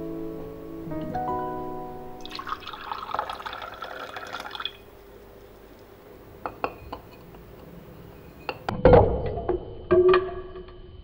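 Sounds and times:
tea pouring into glass: 0:02.2 - 0:04.9.

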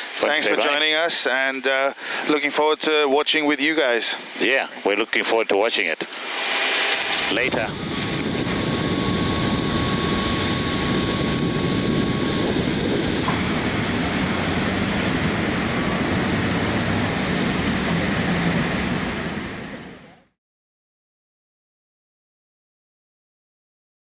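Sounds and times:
jet aircraft noise: 0:06.3 - 0:20.3.

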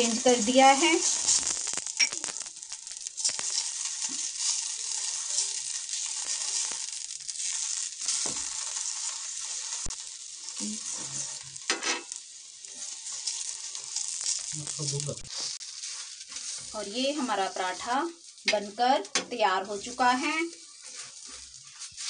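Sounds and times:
clicks and scrapes on griddle: 0:00.0 - 0:22.0
flatbread sizzling in oil: 0:00.0 - 0:22.0.

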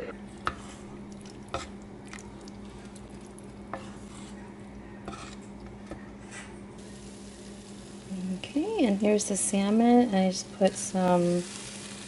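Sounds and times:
steady low hum: 0:00.0 - 0:12.0
spoon stirring thick soup: 0:00.5 - 0:06.1.

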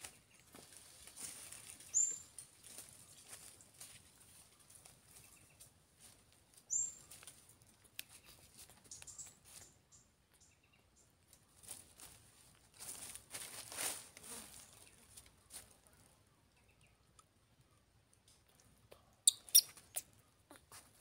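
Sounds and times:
faint ticks and rustles: 0:00.0 - 0:21.0
sharp high chirp: 0:19.3 - 0:19.7.

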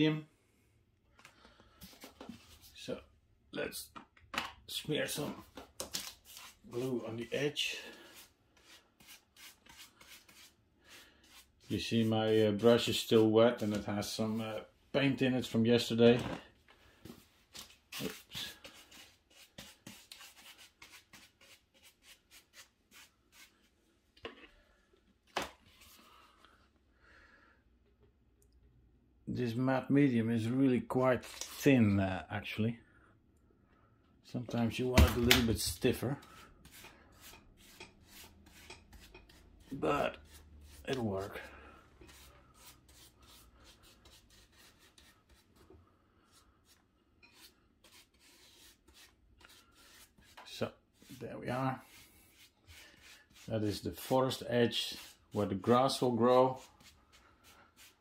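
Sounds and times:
paintbrush rubbing strokes: 0:06.3 - 0:14.6, 0:17.2 - 0:23.7, 0:36.3 - 0:51.2, 0:51.8 - 0:58.0.

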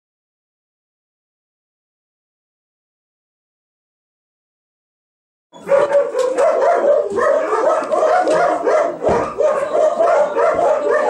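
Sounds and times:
dogs barking: 0:05.6 - 0:11.0.

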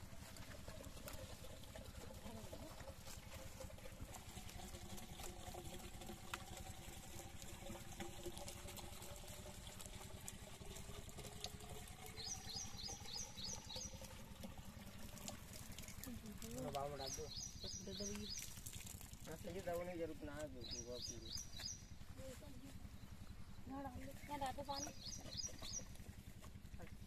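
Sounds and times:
water pouring from a jerrycan: 0:00.0 - 0:21.6.

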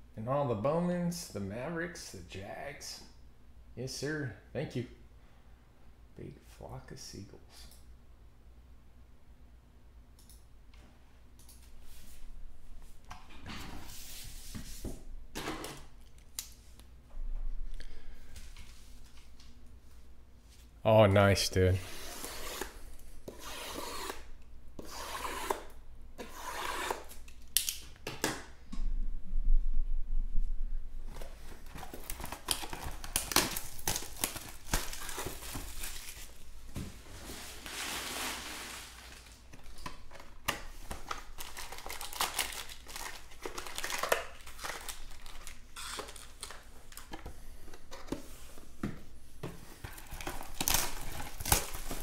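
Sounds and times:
plastic wrap tearing and crinkling: 0:31.5 - 0:36.5, 0:37.5 - 0:47.1, 0:49.9 - 0:52.0.

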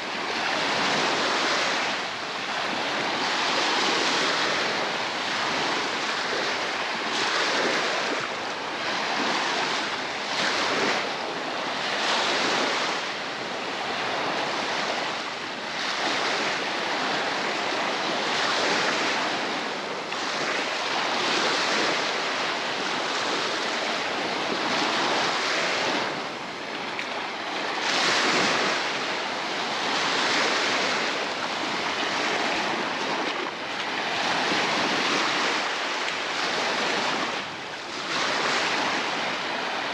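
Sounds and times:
surf breaking on a beach: 0:00.0 - 0:39.9.

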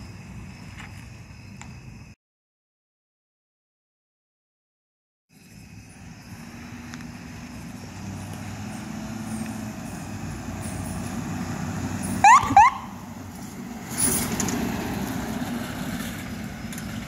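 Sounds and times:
road noise: 0:00.0 - 0:02.2, 0:05.3 - 0:17.0
ambulance engine rumble: 0:05.3 - 0:17.0
rising siren chirps: 0:08.6 - 0:13.2.

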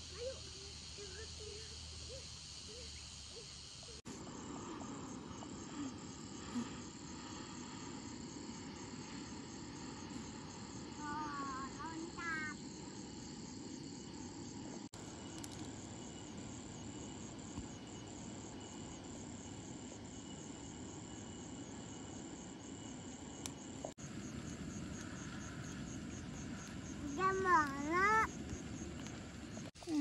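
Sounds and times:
crickets chirping: 0:00.0 - 0:30.0
gas torch flame hissing: 0:04.1 - 0:13.2.

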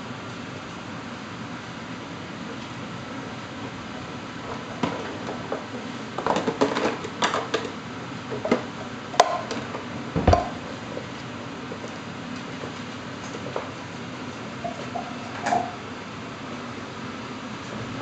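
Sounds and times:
heavy thump: 0:10.2 - 0:10.6
dishes clinking and clattering: 0:14.6 - 0:15.8.

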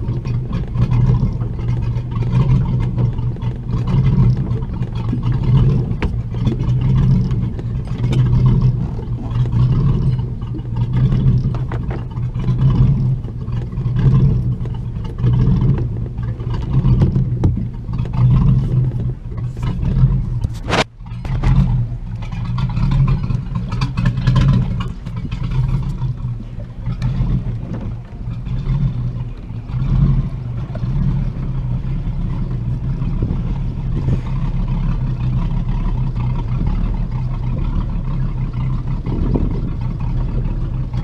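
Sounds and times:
knocks and rattles: 0:00.0 - 0:31.0
boat engine running: 0:00.0 - 0:41.0.

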